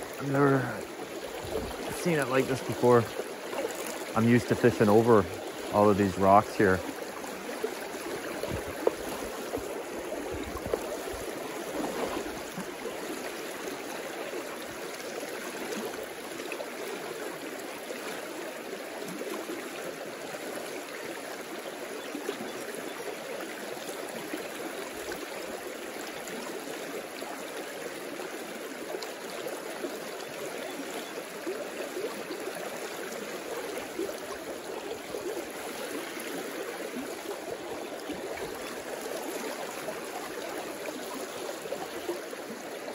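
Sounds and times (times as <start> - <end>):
river rushing over stones: 0.0 - 20.2, 31.2 - 42.9.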